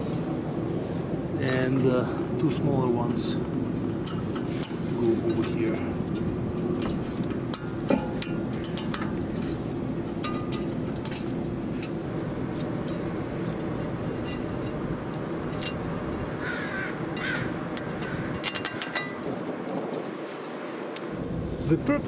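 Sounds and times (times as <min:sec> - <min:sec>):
bird calling: 0:03.4 - 0:19.3
light metallic clicks and taps: 0:03.8 - 0:12.0.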